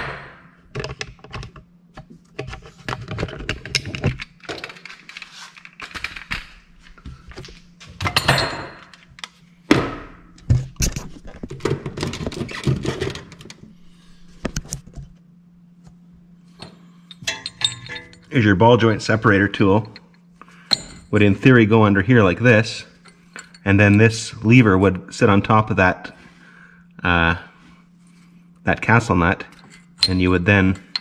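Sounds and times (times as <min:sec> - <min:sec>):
faint low hum: 0:00.0 - 0:31.0
metal tool clinking and scraping: 0:16.6 - 0:18.4, 0:19.7 - 0:21.2, 0:23.0 - 0:24.1, 0:29.5 - 0:31.0.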